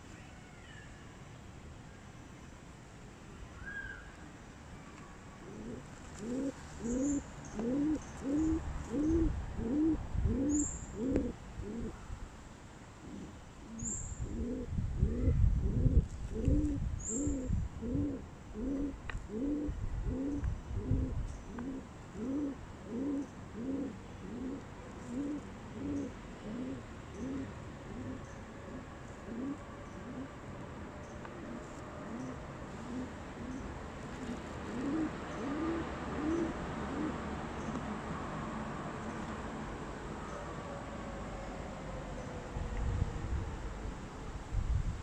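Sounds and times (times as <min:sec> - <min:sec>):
pigeon cooing: 0:05.5 - 0:12.0, 0:13.0 - 0:30.4, 0:31.4 - 0:33.7, 0:34.6 - 0:37.3.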